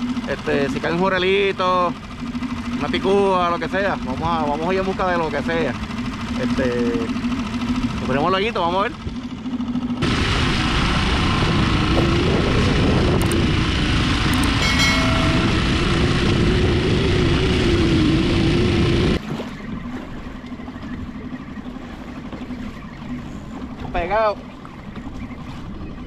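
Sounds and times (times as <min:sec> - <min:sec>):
small outboard motor running: 0:00.0 - 0:26.0
wind: 0:00.0 - 0:26.0
water rushing: 0:14.4 - 0:16.6.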